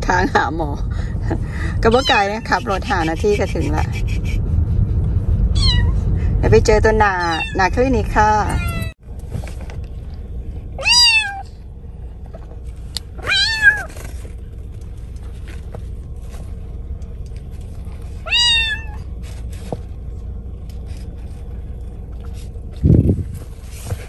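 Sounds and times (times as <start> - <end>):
low car hum: 0.0 - 24.0
kitten meowing: 5.6 - 5.9, 7.3 - 7.7, 8.5 - 8.9, 10.8 - 11.5, 13.2 - 13.9, 18.3 - 19.0.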